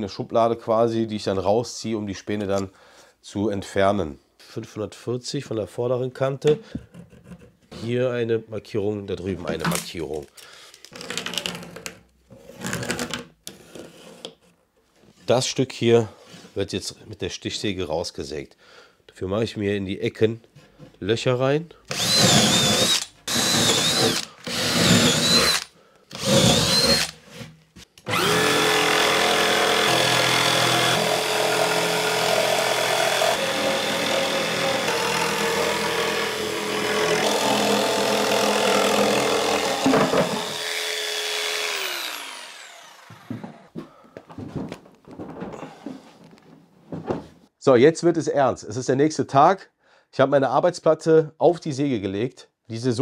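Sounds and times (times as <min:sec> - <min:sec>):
jigsaw cutting board: 0:10.9 - 0:14.4, 0:21.9 - 0:43.8
cordless drill whining: 0:21.9 - 0:27.2, 0:28.0 - 0:43.7.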